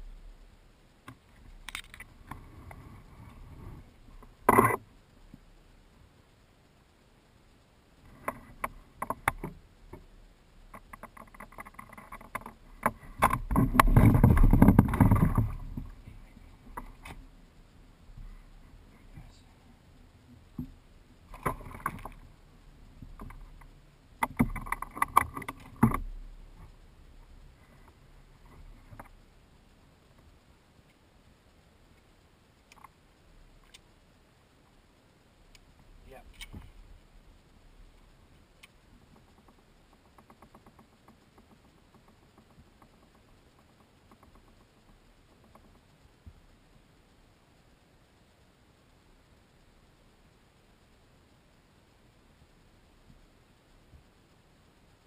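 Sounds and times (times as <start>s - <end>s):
fishing tackle clicks and scrapes: 1.4s - 4.8s, 10.7s - 17.3s, 23.1s - 26.8s.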